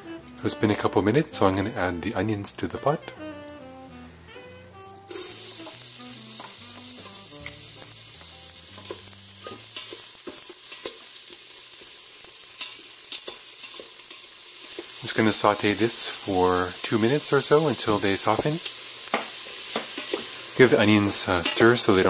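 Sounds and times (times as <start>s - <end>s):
onions sizzling in oil: 5.1s - 22.0s.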